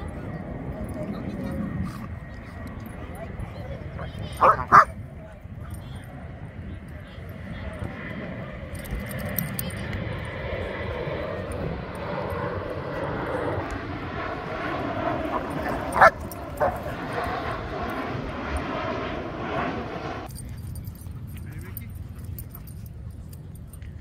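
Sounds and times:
airplane passing overhead: 0:00.0 - 0:24.0
dog barking: 0:04.4 - 0:04.9, 0:15.6 - 0:16.8.

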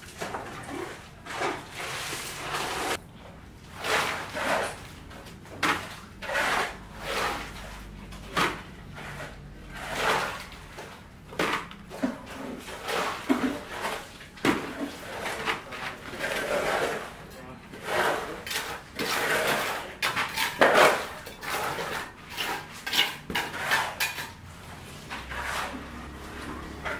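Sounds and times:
scraping wet concrete: 0:00.1 - 0:03.0, 0:03.6 - 0:26.9.

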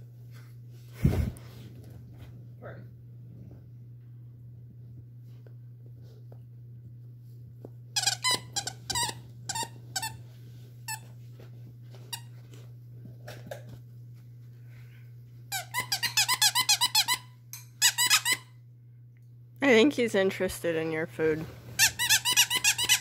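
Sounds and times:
dog toy squeaking: 0:15.6 - 0:17.2, 0:17.8 - 0:18.4, 0:21.8 - 0:23.0.

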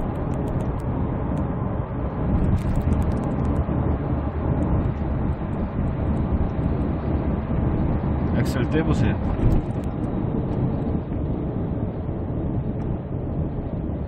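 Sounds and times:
engine and tyre rumble in cabin: 0:00.0 - 0:14.0.

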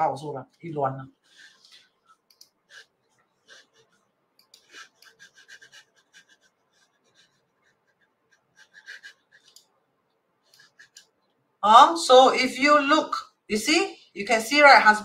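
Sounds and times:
stylus scratching on tablet screen: 0:01.4 - 0:09.8, 0:10.4 - 0:11.3.

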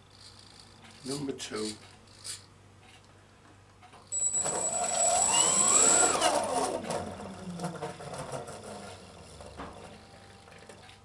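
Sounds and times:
steady high tone: 0:04.1 - 0:06.8
propeller motors whining: 0:04.2 - 0:09.3.

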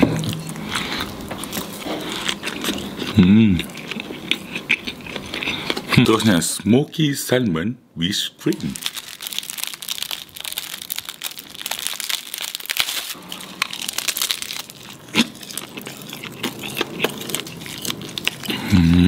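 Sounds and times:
seaweed crunching while chewed: 0:00.0 - 0:05.9, 0:08.5 - 0:18.8
plastic wrapper crinkling and tearing: 0:08.5 - 0:18.5.

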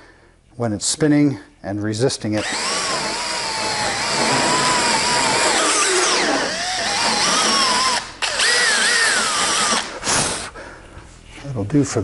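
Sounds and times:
cordless drill grinding wood: 0:02.4 - 0:10.5.

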